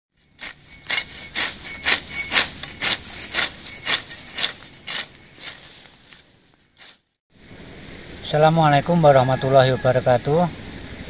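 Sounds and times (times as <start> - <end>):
sickle cutting grass: 0.2 - 7.2.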